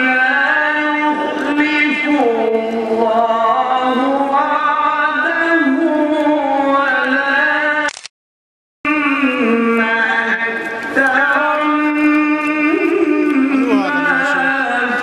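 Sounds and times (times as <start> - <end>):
solo voice chanting: 11.2 - 15.0.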